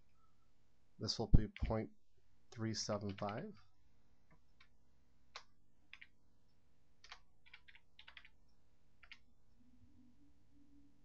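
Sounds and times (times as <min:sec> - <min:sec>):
keyboard key presses: 0:07.0 - 0:08.3.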